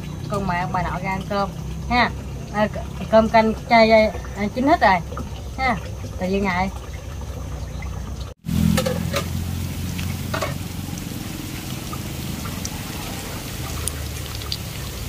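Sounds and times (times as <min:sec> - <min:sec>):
fish sizzling in oil: 0:08.4 - 0:15.0
oil crackling and popping: 0:08.5 - 0:15.0.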